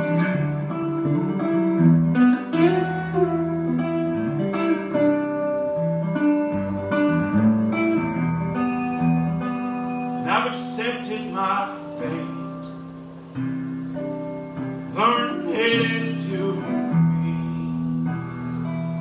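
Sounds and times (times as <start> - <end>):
acoustic guitar chords: 0.0 - 19.0
man singing: 10.2 - 12.8, 14.9 - 18.0.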